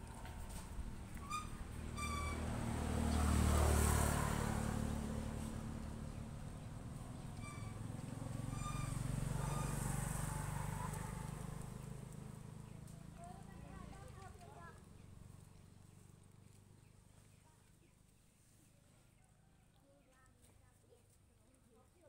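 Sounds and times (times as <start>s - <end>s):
motorbikes passing: 0.0s - 17.1s
short high squeaks: 0.4s - 2.8s, 7.3s - 10.2s.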